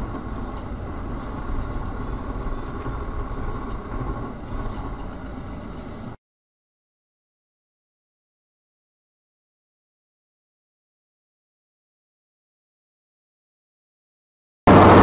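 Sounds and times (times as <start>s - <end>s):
car road and engine noise: 0.0s - 6.2s, 14.7s - 15.0s.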